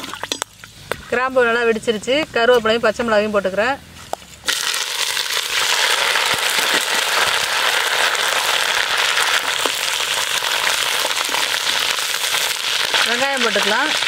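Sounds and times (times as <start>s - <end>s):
oil sizzling: 4.3s - 14.0s
leaves spattering in hot oil: 4.4s - 14.0s.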